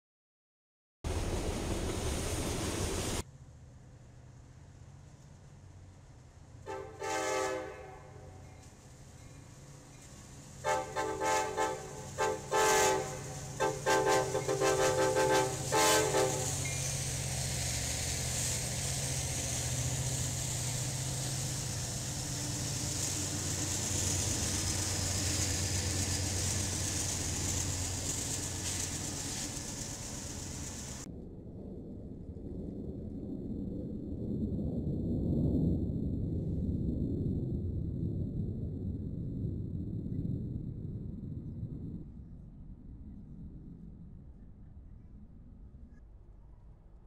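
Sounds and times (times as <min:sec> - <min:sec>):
train engines and wheels running: 0:01.1 - 0:31.1
locomotive horn blasts: 0:06.6 - 0:08.5, 0:10.6 - 0:16.8.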